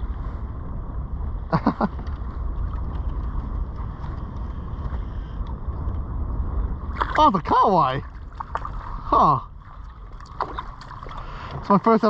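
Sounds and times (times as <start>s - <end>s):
wind buffeting microphone: 0.0s - 12.0s
water against kayak hull: 1.2s - 6.0s, 6.6s - 12.0s.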